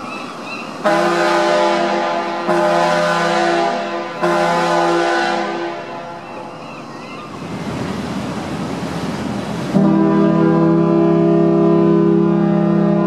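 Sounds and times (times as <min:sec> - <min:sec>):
ferry horn blast: 0:00.8 - 0:06.2, 0:09.7 - 0:13.0.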